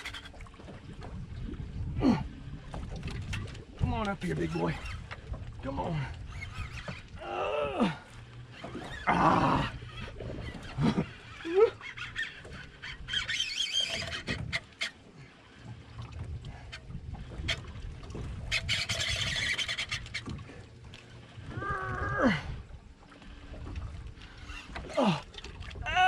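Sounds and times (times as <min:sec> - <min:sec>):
fishing reel cranking: 0:08.5 - 0:15.0, 0:18.5 - 0:20.3.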